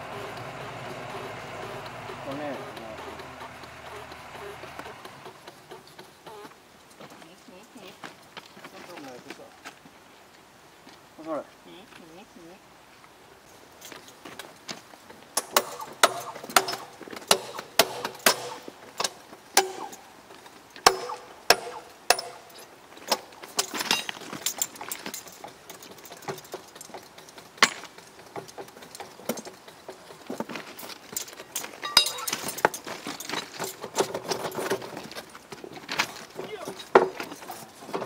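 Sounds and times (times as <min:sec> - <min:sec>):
metallic clinks and clanks: 0:15.4 - 0:38.0.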